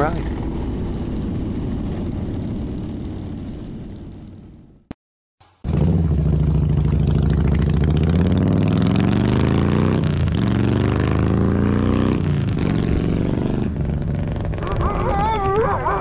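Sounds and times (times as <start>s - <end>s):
motorcycle accelerating away: 5.6s - 16.0s.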